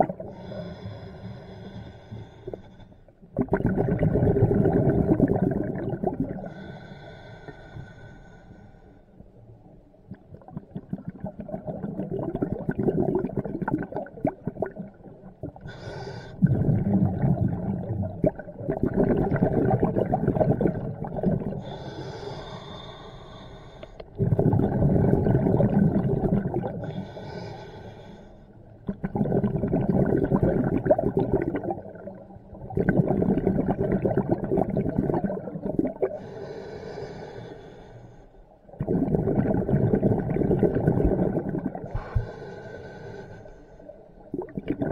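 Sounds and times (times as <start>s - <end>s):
bubbly regulator exhalations: 0.0s - 0.9s, 3.4s - 7.0s, 10.3s - 21.9s, 24.1s - 27.4s, 28.8s - 36.6s, 38.7s - 42.7s, 44.3s - 44.9s
hissing regulator inhalations: 36.2s - 38.4s, 41.9s - 44.0s.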